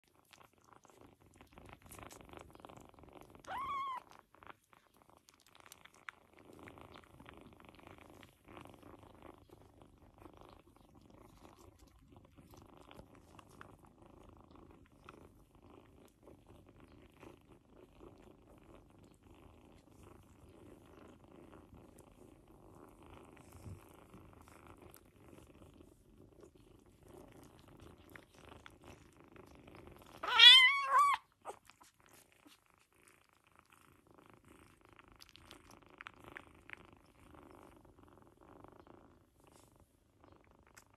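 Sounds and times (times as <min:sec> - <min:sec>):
cat purring: 0:00.0 - 0:40.9
cat meow: 0:03.4 - 0:04.0, 0:30.2 - 0:31.6.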